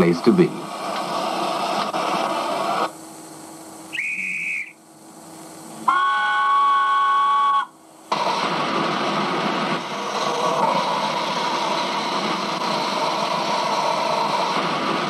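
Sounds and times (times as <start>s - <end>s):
steam hissing: 0.0s - 15.0s
guard's whistle: 3.9s - 4.8s, 5.9s - 7.7s
steam locomotive chime whistle: 3.9s - 4.8s, 5.9s - 7.8s.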